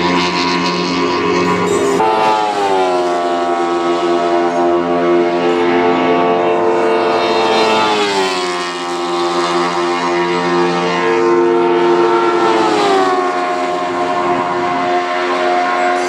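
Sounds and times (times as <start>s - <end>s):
race car engines at high revs: 0.0s - 16.0s.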